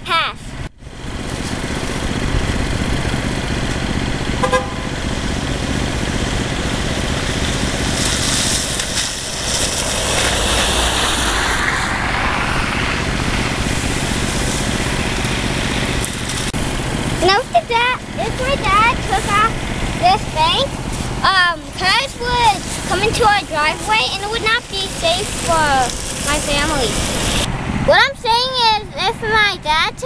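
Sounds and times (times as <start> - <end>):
low steady rumble: 0.0 - 30.0
tyres hissing on slush: 7.7 - 16.4, 17.3 - 27.5.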